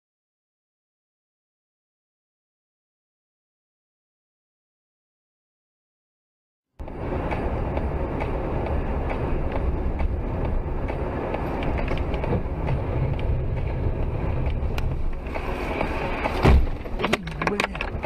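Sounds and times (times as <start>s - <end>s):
vehicle driving rumble: 6.8s - 18.0s.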